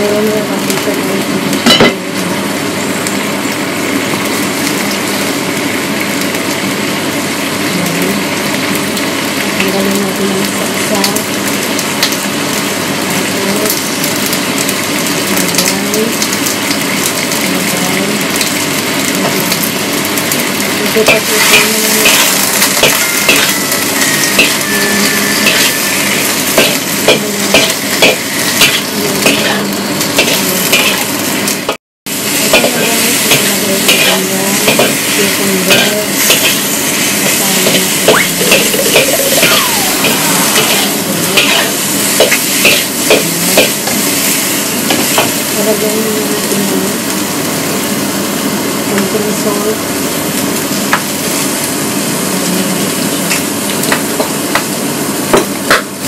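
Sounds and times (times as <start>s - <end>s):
food sizzling in a wok: 0.0s - 56.0s
metal spatula scraping a wok: 21.1s - 29.6s, 30.2s - 31.1s, 32.5s - 43.8s.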